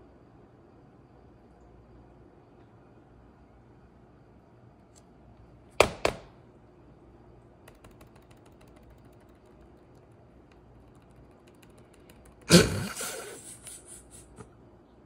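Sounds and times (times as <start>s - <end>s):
laptop knocking: 5.8s - 6.3s, 7.7s - 12.9s
laptop keys clicking: 7.6s - 12.6s.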